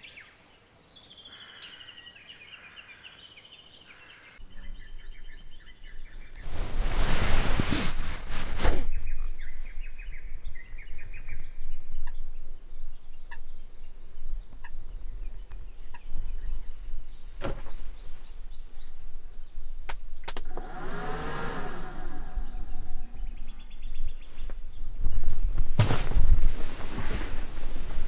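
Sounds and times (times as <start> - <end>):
birds chirping: 0.0 - 6.5, 8.9 - 25.5
steady low rumble: 20.4 - 24.8.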